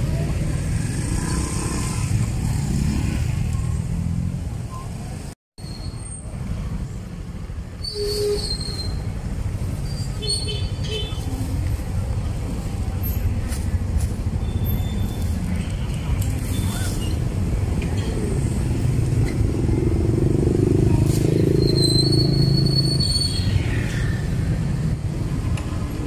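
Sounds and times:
traffic and motorbike engines: 0.0s - 26.0s
short high squeaks: 7.8s - 9.2s, 21.2s - 23.7s.

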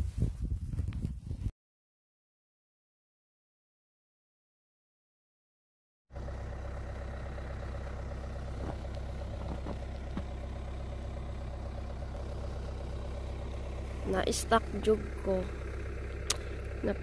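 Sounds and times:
car engine idling: 6.1s - 17.0s.

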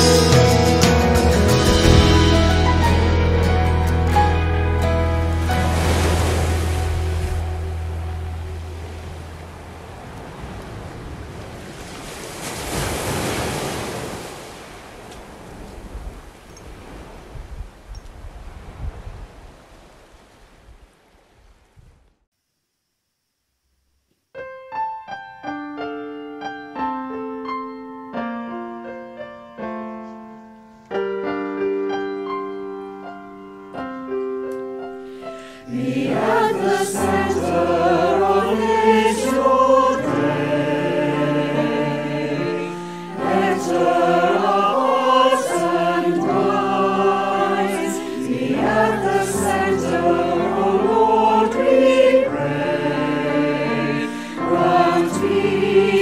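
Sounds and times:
solo piano: 24.3s - 56.0s
choir singing a sacred song: 35.6s - 56.0s.

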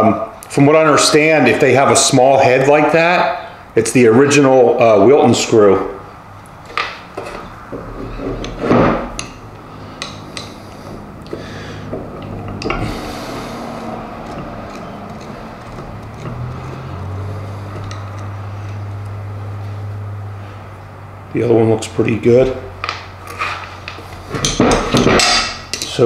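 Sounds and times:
low steady hum: 5.0s - 26.0s
loose screws clinking: 11.2s - 13.4s, 17.7s - 18.8s
screwdriver clicking on metal screws: 14.1s - 17.0s, 17.7s - 18.8s.

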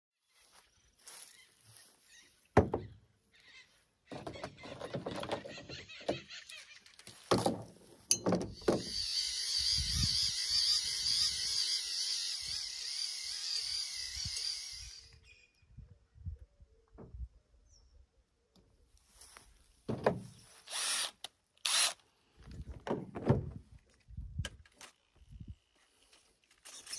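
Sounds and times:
knocks and handling clatter: 4.1s - 6.3s.

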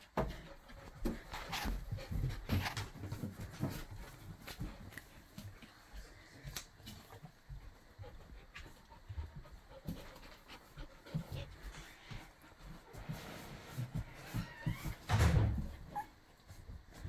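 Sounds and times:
puppies stirring and breathing: 0.0s - 17.0s.

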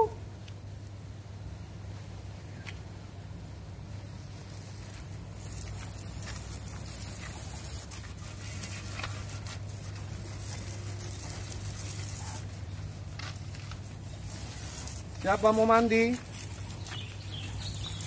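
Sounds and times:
steady low hum: 0.0s - 18.0s
water hissing from spray nozzle: 3.7s - 18.0s.

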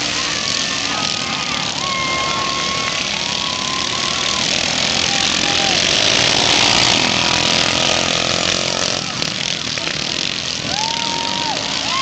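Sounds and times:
racing lawn mower engines: 0.0s - 12.0s.

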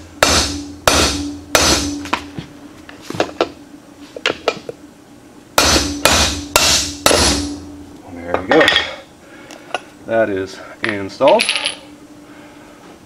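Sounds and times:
hammer striking metal: 0.2s - 2.3s, 5.6s - 9.0s.

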